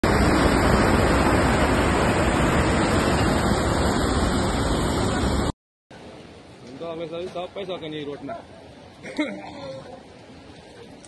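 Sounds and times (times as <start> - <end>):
river rushing: 0.0 - 6.6.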